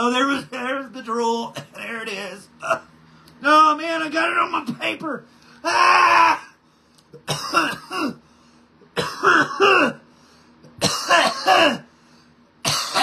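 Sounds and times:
man coughing hard: 7.2 - 8.2, 9.0 - 10.0, 10.8 - 11.9, 12.6 - 13.0.

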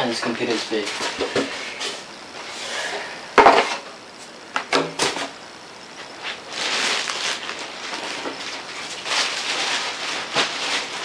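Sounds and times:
plastic bag rustling: 6.1 - 11.0.

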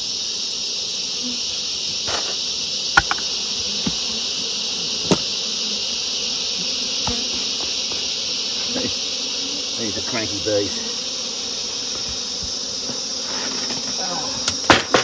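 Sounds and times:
high-pitched insect drone: 0.0 - 15.0
plastic hive parts knocking: 2.9 - 4.1, 5.0 - 5.4, 13.7 - 15.0.

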